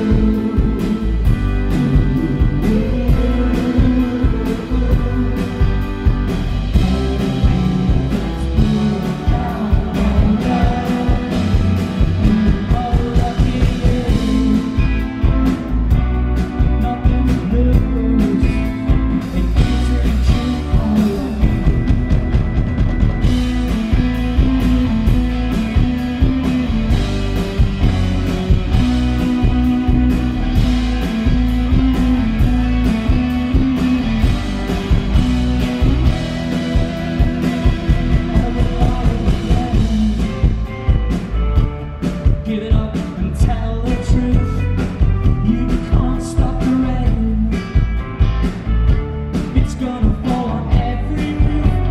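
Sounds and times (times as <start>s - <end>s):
person singing: 0.0s - 15.5s, 16.6s - 22.0s, 31.7s - 40.8s, 42.2s - 47.9s, 49.4s - 51.9s
bass: 0.0s - 51.9s
drum kit beat: 0.0s - 51.9s
electric guitars: 0.0s - 51.9s.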